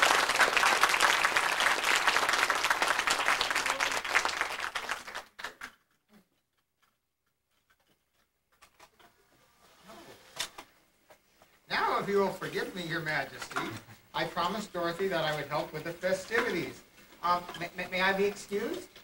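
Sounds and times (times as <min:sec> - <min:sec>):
audience clapping: 0:00.0 - 0:05.9.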